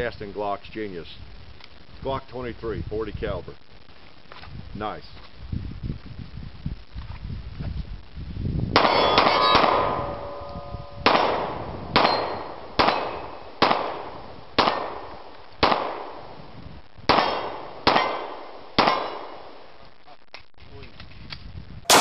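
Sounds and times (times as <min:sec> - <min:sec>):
pistol shots: 0:08.8 - 0:10.0, 0:11.0 - 0:16.2, 0:17.1 - 0:19.4
steel targets ringing: 0:08.8 - 0:11.1, 0:12.0 - 0:13.4.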